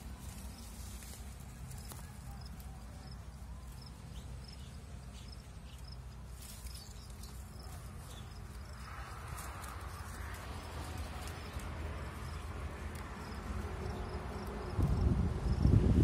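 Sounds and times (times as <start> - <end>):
rustling scrape of leaves: 0.0 - 15.0
low microphone rumble: 13.6 - 16.0.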